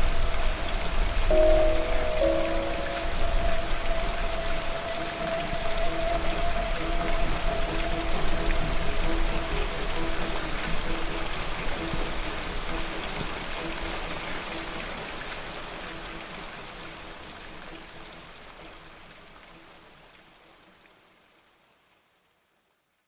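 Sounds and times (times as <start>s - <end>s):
rain hissing: 0.0s - 18.4s
faint background music: 0.1s - 20.0s.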